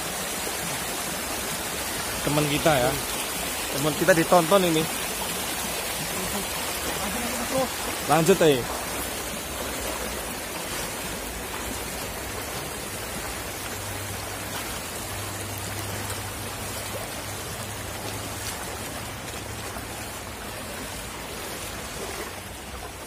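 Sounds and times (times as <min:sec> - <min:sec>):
stream water rushing and splashing: 0:00.0 - 0:23.0.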